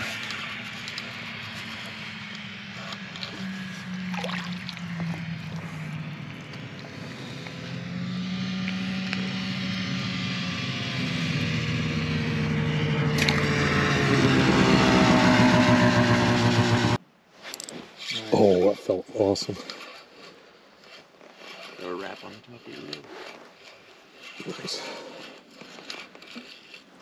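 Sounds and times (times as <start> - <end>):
vehicle engine approaching: 0.0 - 17.0.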